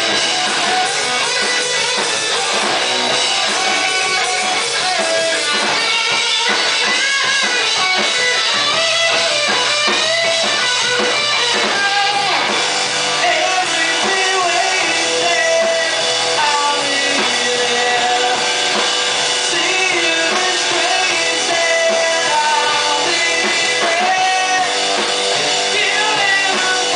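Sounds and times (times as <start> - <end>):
drum kit: 0.0 - 26.9
electric bass: 0.0 - 26.9
electric guitar: 0.0 - 26.9
man singing: 11.6 - 12.6, 13.2 - 26.9.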